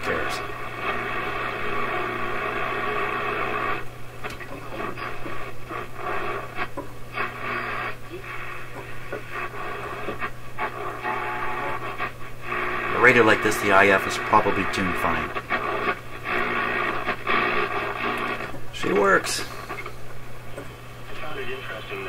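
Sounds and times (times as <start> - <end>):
radio playing through small speaker: 0.0 - 22.0.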